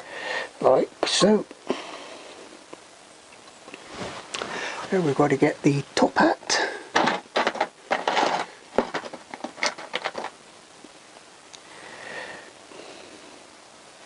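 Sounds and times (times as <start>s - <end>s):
metal parts clattering: 6.9s - 10.4s.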